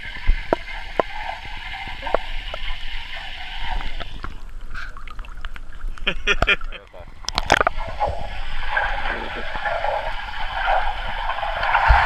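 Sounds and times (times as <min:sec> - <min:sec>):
muffled underwater rush of water: 0:00.0 - 0:12.0
sharp clicks and knocks: 0:07.3 - 0:07.8.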